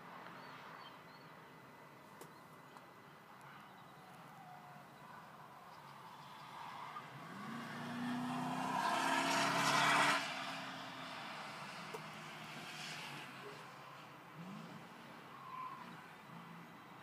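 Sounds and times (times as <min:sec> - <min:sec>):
car rushing past: 0:06.2 - 0:16.6
car engine accelerating: 0:06.3 - 0:13.7.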